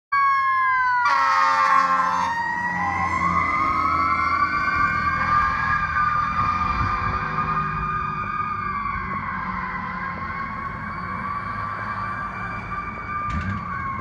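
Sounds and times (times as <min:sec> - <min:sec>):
fire engine siren wailing: 0:00.1 - 0:14.0
air horn blast: 0:01.1 - 0:02.3.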